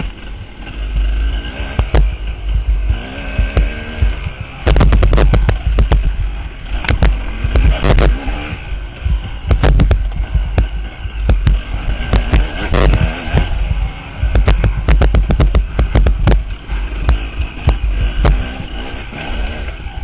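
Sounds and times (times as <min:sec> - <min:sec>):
dirt bike engine revving: 0:00.0 - 0:20.0
wind rumble: 0:00.0 - 0:20.0
sharp knocks and cracks: 0:06.8 - 0:08.1, 0:09.4 - 0:13.5, 0:14.3 - 0:18.5.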